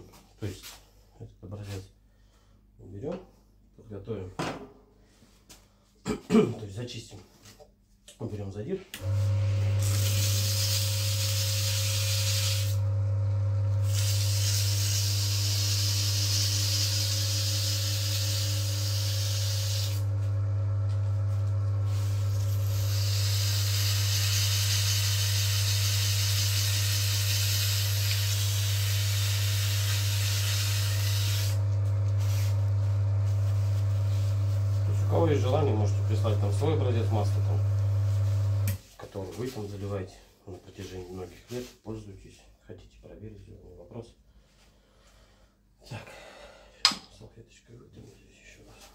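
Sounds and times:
electric motor humming: 9.0s - 38.8s
high hissing scrape: 13.8s - 20.0s, 21.9s - 31.6s.

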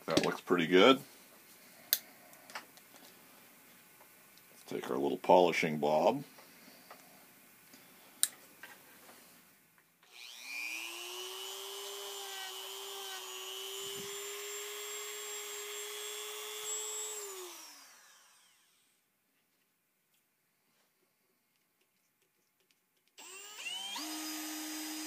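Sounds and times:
power drill spinning: 10.0s - 19.0s, 23.2s - 25.0s.

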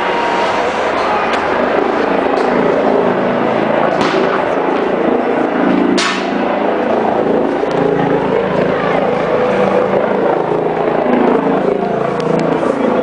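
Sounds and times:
helicopter droning overhead: 0.0s - 13.0s
street noise: 0.0s - 13.0s
sharp bangs: 3.8s - 6.8s.

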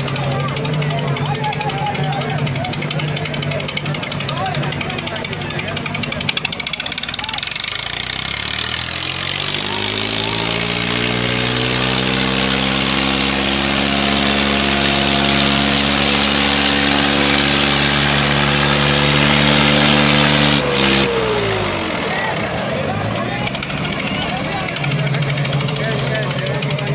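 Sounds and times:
tractor diesel engine revving: 0.0s - 26.9s.

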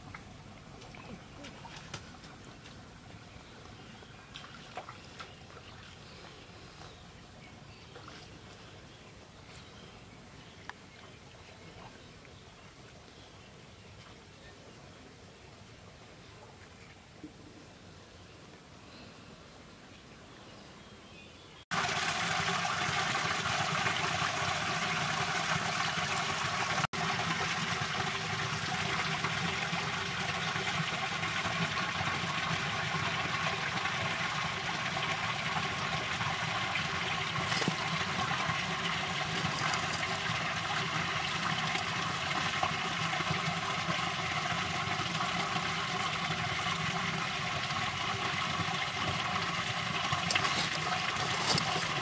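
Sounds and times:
water running: 21.7s - 52.0s.

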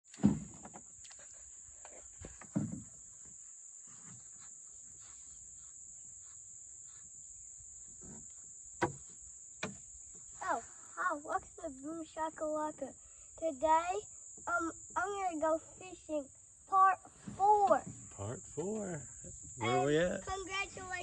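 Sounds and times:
high-pitched insect chorus: 0.2s - 21.0s
dull knocks: 8.8s - 9.8s.

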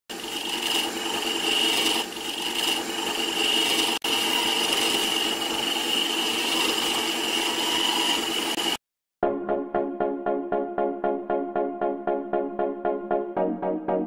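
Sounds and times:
wood lathe whining: 0.1s - 8.8s
chisel scraping wood: 0.2s - 8.6s.

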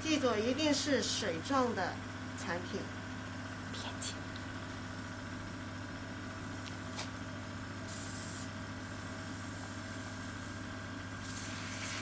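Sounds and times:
compressor humming: 0.0s - 12.0s
oxygen spray hiss: 7.9s - 8.5s, 11.2s - 12.0s.

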